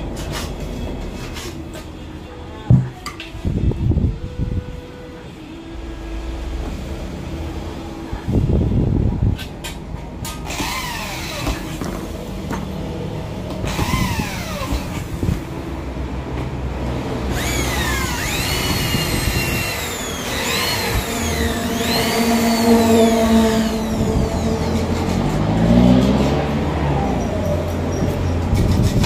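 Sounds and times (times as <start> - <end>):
electric drills whining: 10.4 - 11.8, 13.6 - 15.0, 17.3 - 25.1.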